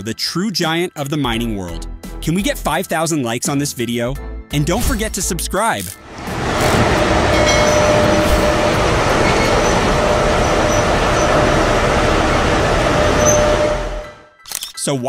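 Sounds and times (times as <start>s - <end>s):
constant engine whine: 6.0s - 14.3s
haul truck driving by: 6.0s - 14.4s.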